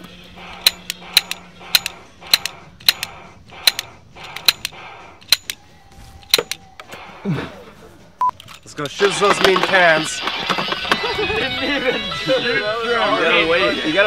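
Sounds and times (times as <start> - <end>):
toy revolver clicking: 0.4 - 5.6, 6.2 - 6.8.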